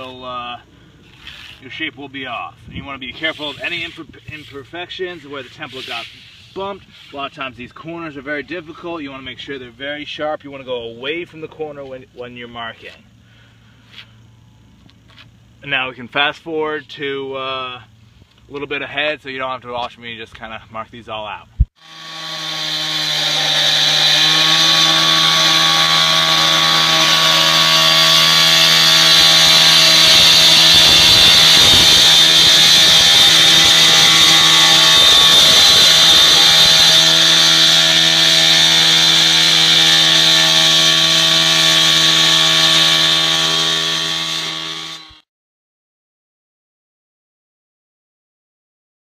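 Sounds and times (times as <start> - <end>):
cut-off saw engine whine: 0.0 - 7.8, 21.8 - 45.2
saw blade grinding through stone: 3.2 - 7.3, 21.8 - 45.2.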